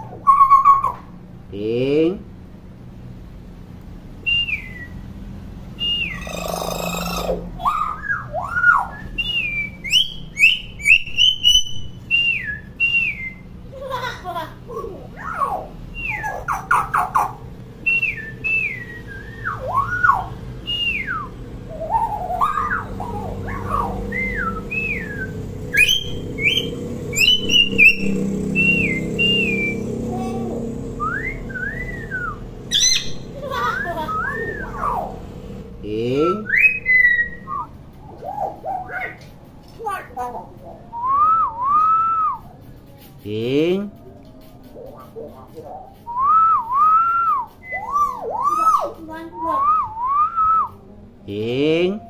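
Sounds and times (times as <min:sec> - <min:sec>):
myna whistling calls: 0:00.0 - 0:01.1, 0:04.2 - 0:05.1, 0:05.7 - 0:13.6, 0:15.2 - 0:35.6, 0:36.4 - 0:39.2, 0:45.7 - 0:50.8.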